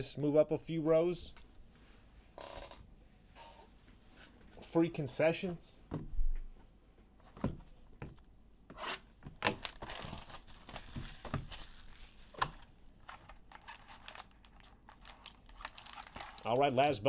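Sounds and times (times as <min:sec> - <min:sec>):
plastic shrink wrap tearing: 0:09.4 - 0:16.6
plastic wrap crinkling: 0:09.4 - 0:16.9.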